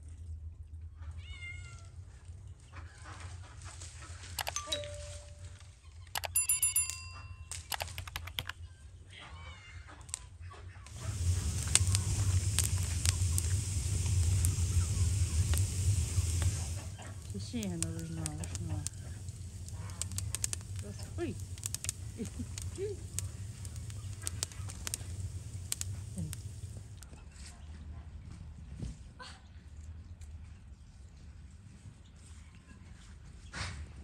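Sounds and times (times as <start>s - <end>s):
brief ringing tone: 4.4s - 5.6s, 6.2s - 7.5s
wood fire crackling and popping: 6.8s - 8.5s, 10.8s - 27.2s.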